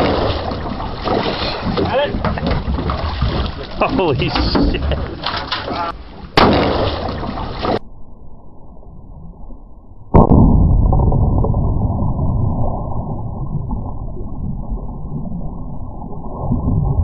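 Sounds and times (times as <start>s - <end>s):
fish thrashing and splashing: 0.0s - 7.8s
sudden loud bang: 4.4s - 7.8s, 10.1s - 11.5s.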